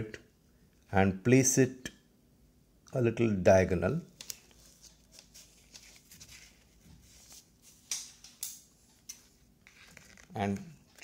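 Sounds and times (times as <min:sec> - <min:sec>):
tape and card rustling: 0:04.1 - 0:11.0.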